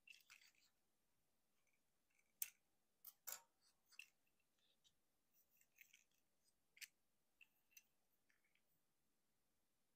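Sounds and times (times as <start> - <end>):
plastic toy parts clicking: 0.0 - 0.8, 2.1 - 4.7, 5.6 - 8.6.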